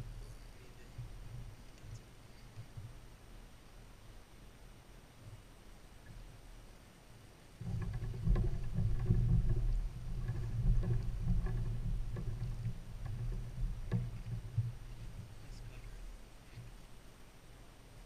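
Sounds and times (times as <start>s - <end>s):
muffled low rumble: 0.0s - 4.0s, 7.7s - 16.9s
light knocks on hull: 7.6s - 16.8s.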